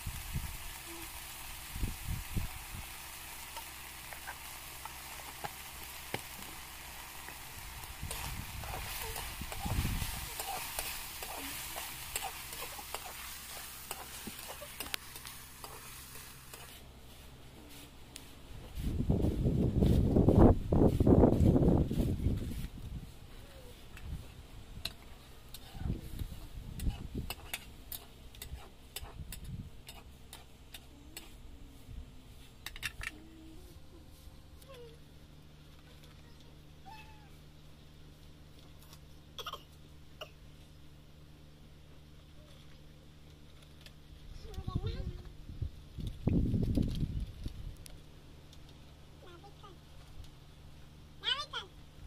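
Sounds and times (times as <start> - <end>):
food sizzling in oil: 0.0 - 16.8.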